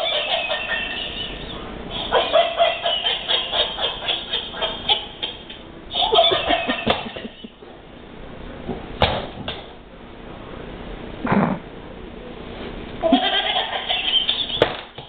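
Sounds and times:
electronic toy giggling: 0.0s - 7.6s, 13.0s - 14.6s.

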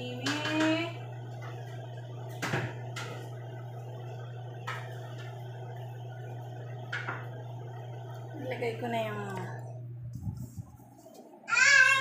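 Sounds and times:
steady low hum: 0.0s - 12.0s
knocks on kitchen counter: 2.3s - 3.2s, 6.9s - 7.3s.

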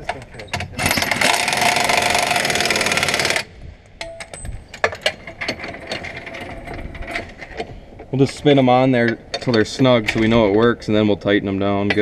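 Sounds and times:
air impact wrench hammering: 0.8s - 3.5s.

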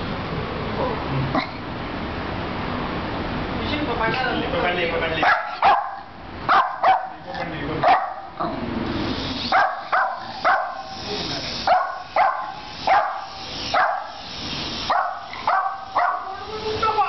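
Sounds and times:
small dog barking: 5.2s - 7.2s, 7.8s - 8.4s, 9.5s - 10.9s, 11.6s - 16.4s
toy helicopter rotor whir: 9.0s - 17.0s.

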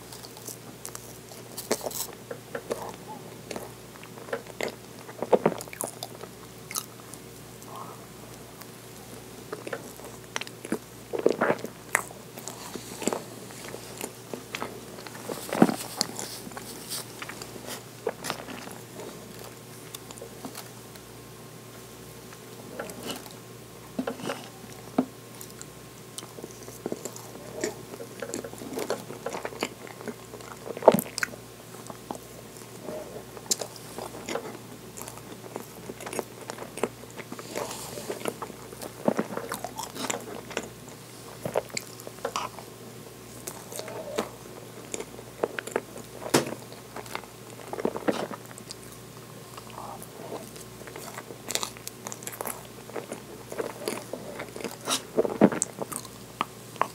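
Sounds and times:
person chewing: 0.0s - 21.1s, 24.0s - 56.9s.

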